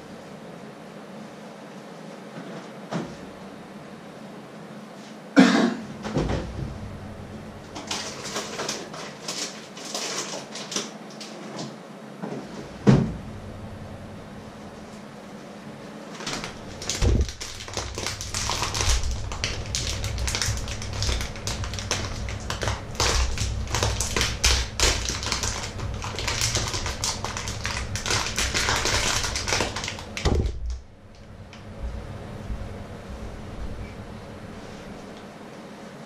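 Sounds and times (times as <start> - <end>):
food bag rustling and crackling: 7.7 - 11.5, 16.2 - 30.6
thump: 12.8 - 13.2.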